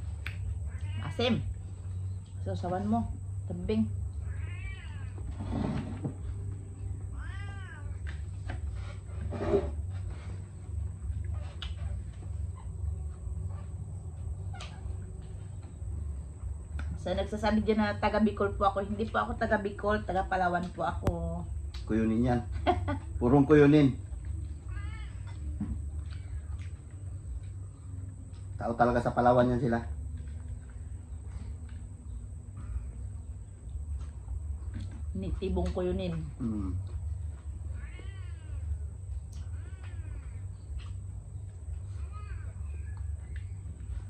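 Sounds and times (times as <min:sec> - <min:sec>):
low steady hum: 0:00.0 - 0:44.0
cat meowing: 0:00.6 - 0:01.2, 0:04.2 - 0:05.3, 0:07.1 - 0:08.1, 0:24.6 - 0:26.7, 0:37.7 - 0:40.5.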